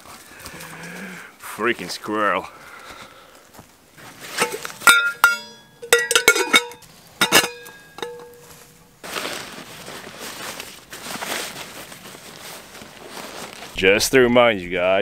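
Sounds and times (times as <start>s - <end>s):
rustling: 2.8s - 14.6s
metal pot clinking: 4.4s - 8.6s.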